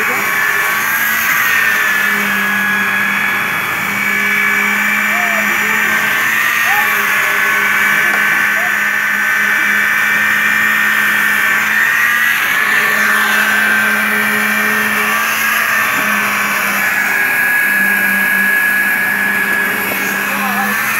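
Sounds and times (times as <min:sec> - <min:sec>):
machinery engine humming and whining: 0:00.0 - 0:20.9.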